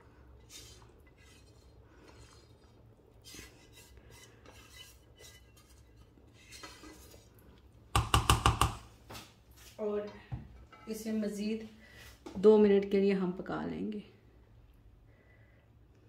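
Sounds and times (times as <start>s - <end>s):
spatula scraping a pan: 0.0s - 7.6s
metal knocking on pot rim: 7.9s - 8.9s.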